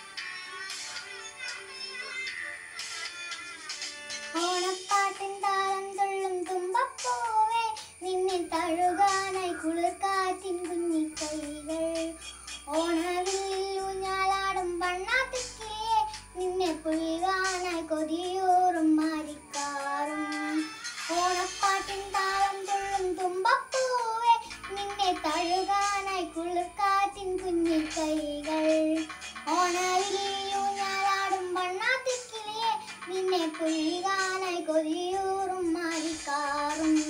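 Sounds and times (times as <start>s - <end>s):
instrumental accompaniment with beat: 0.0s - 5.1s, 27.4s - 30.4s
girl singing: 4.2s - 37.0s.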